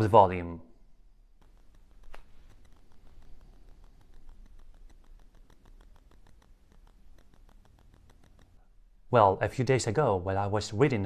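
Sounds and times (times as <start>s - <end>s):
rapid interference ticking: 1.3s - 8.7s.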